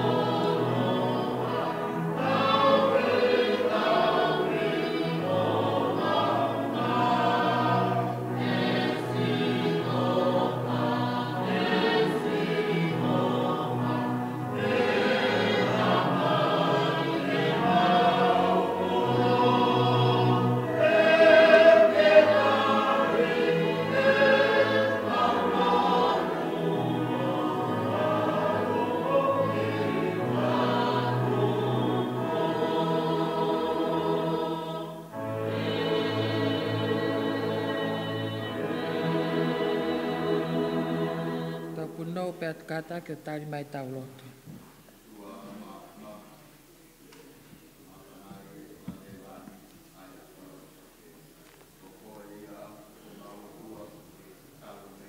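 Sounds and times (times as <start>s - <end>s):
congregation singing a hymn: 0.0s - 43.9s.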